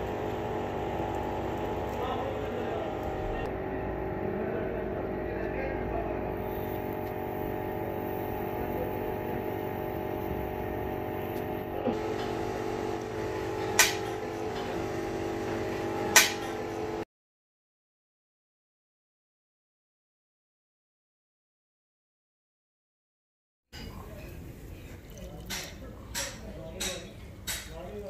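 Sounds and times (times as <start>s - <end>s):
small electric motor humming: 6.2s - 17.0s.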